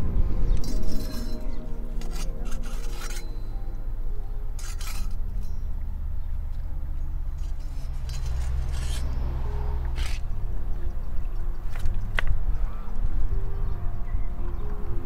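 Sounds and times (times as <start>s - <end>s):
background music: 0.0s - 6.8s, 7.6s - 15.0s
knife scraping on stone: 0.7s - 3.5s, 4.6s - 5.6s, 7.4s - 10.2s.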